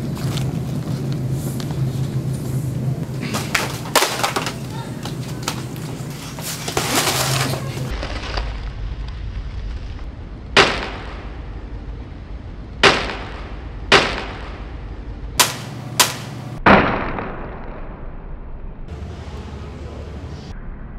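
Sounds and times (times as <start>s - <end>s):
sharp bangs with echo: 10.6s - 11.5s, 12.8s - 14.8s, 15.4s - 18.4s.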